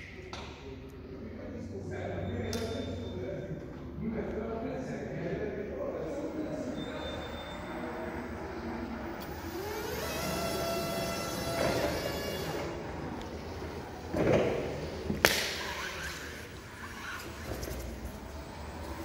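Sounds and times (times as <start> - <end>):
electric forklift motor whining: 8.2 - 13.8.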